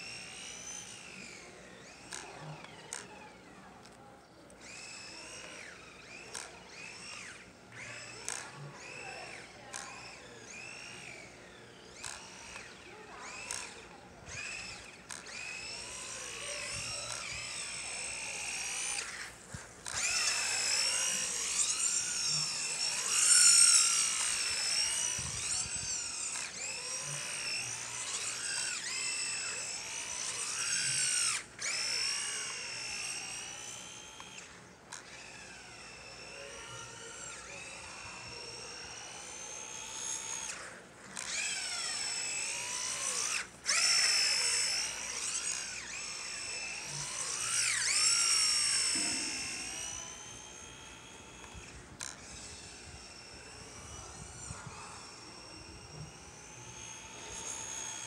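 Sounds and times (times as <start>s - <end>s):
electric motor and gears whining: 0.0s - 58.0s.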